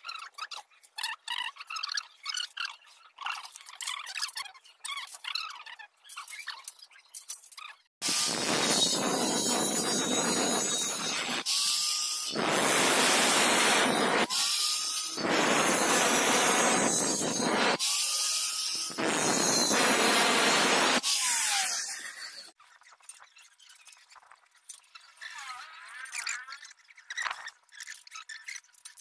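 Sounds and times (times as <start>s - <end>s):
angle grinder cutting steel: 8.0s - 22.6s.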